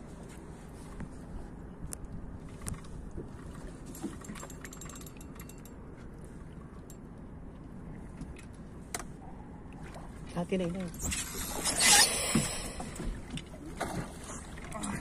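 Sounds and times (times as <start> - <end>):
low wind: 0.0 - 15.0
water noise: 0.0 - 15.0.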